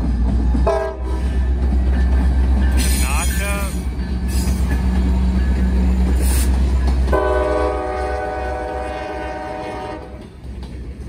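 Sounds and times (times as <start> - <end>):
diesel train engine rumble: 0.0 - 11.0
locomotive air horn chord: 7.1 - 10.2.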